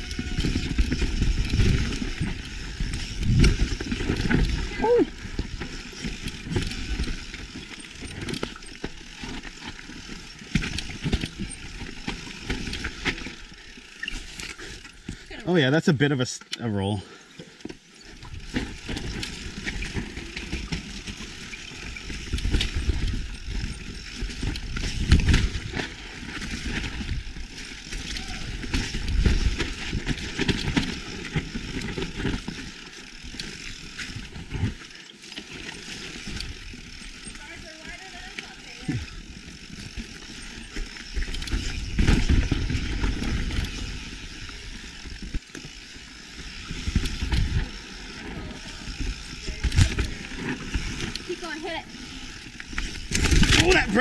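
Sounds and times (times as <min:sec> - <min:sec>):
bike tyres on dirt and rock: 0:00.0 - 0:15.7, 0:16.8 - 0:54.0
bike knocks and rattles: 0:00.1 - 0:14.2, 0:18.2 - 0:34.8, 0:52.5 - 0:54.0.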